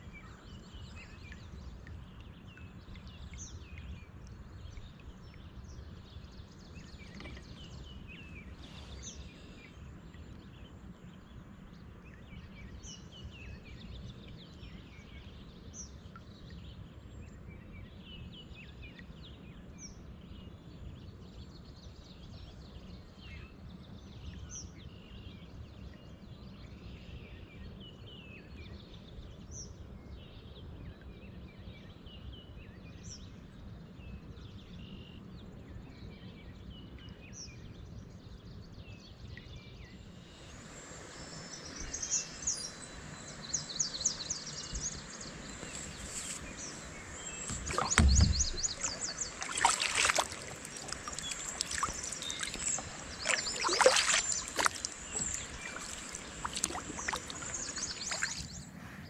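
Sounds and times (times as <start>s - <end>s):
birds chirping: 39.8s - 59.0s
kayak paddle splashing water: 41.4s - 58.7s.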